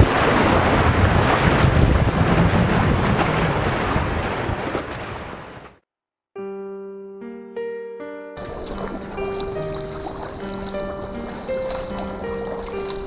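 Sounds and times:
wind buffeting microphone: 0:00.0 - 0:05.7, 0:08.4 - 0:13.0
seawater surging and churning: 0:00.0 - 0:05.8, 0:08.4 - 0:13.0.

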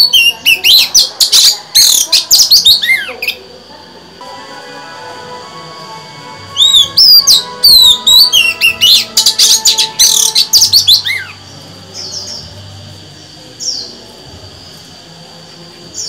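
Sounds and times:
bird singing whistled notes: 0:00.0 - 0:03.4, 0:06.5 - 0:12.7.

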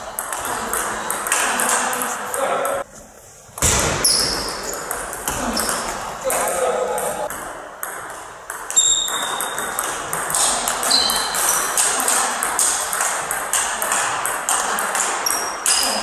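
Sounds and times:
table tennis ball tapping: 0:07.3 - 0:15.9.

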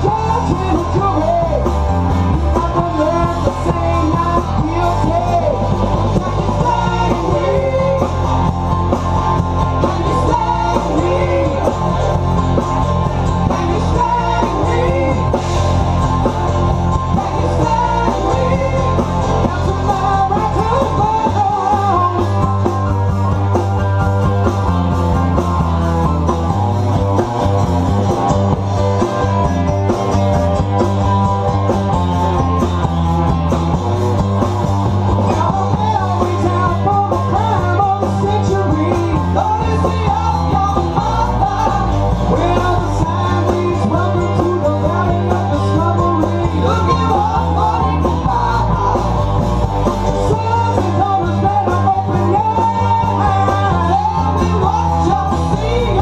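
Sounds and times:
live rock band playing: 0:00.0 - 0:56.0
person singing: 0:02.4 - 0:08.2, 0:09.7 - 0:12.3, 0:13.4 - 0:15.5, 0:17.1 - 0:22.7, 0:35.2 - 0:56.0.

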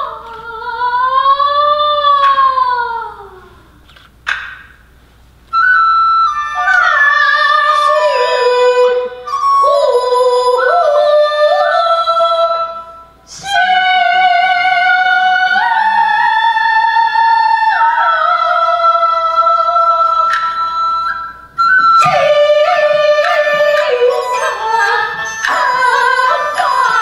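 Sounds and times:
opera singing: 0:00.0 - 0:03.5, 0:06.6 - 0:20.7, 0:21.9 - 0:27.0
flute: 0:05.5 - 0:27.0.

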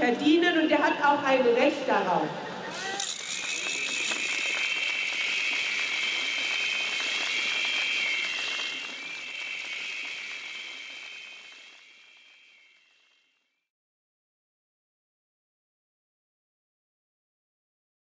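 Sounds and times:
crowd applauding: 0:02.7 - 0:13.0
shrill whistles: 0:02.7 - 0:13.7.

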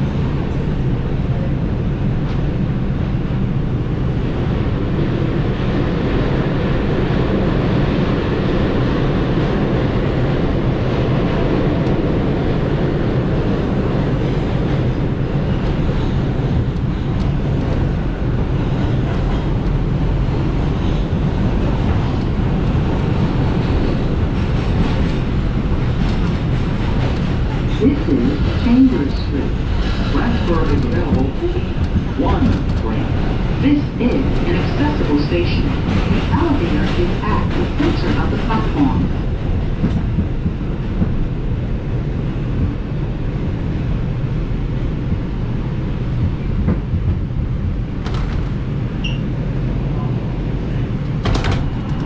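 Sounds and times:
subway train wheels rumbling: 0:00.0 - 0:52.0.

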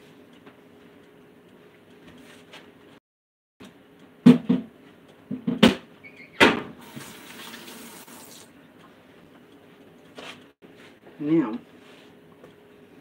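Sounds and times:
kitchen tap running: 0:06.8 - 0:08.5.

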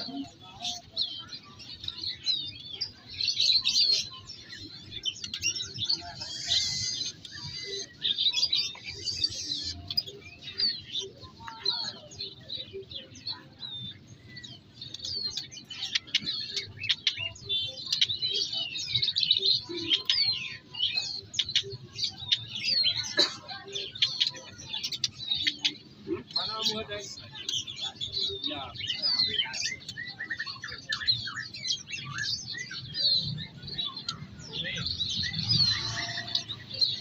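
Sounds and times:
songbirds chirping and twittering: 0:00.0 - 0:37.0.

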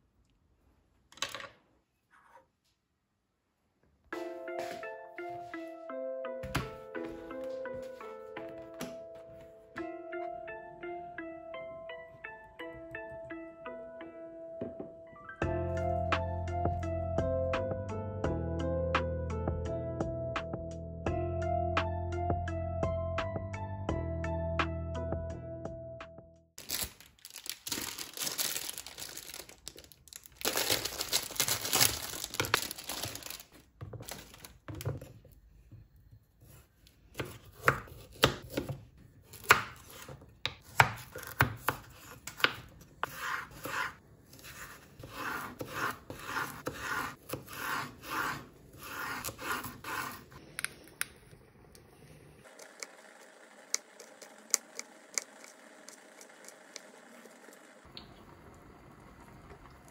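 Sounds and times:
knife scraping on cutting board: 0:41.8 - 0:50.4.

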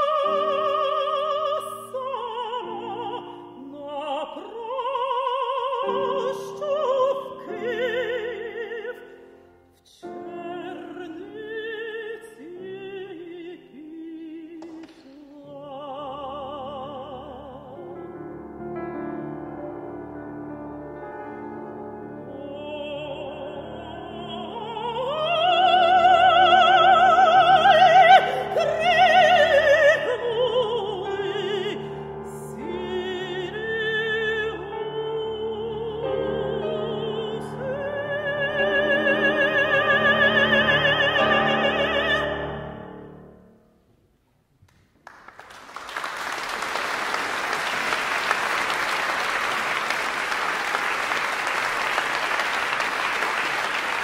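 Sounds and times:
woman singing with vibrato: 0:00.0 - 0:18.0, 0:22.2 - 0:43.1
piano: 0:00.0 - 0:54.0
audience applauding: 0:45.0 - 0:54.0.

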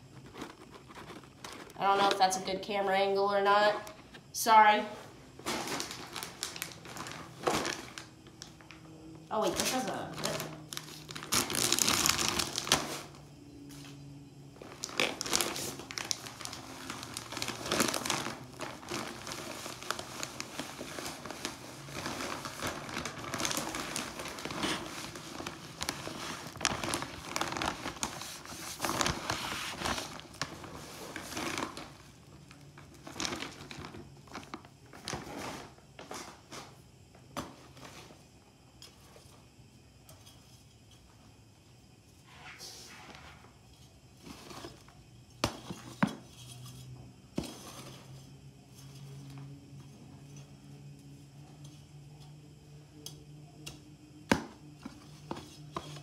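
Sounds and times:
plastic bag crinkling: 0:05.4 - 0:08.7, 0:09.3 - 0:13.1, 0:14.6 - 0:32.1, 0:32.8 - 0:35.7.

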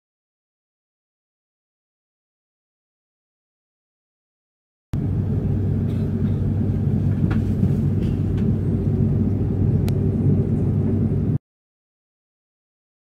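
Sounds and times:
airliner cabin rumble: 0:05.0 - 0:11.4.

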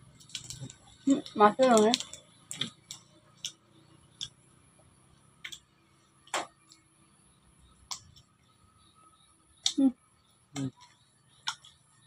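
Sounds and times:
food packets crinkling: 0:00.2 - 0:02.8.

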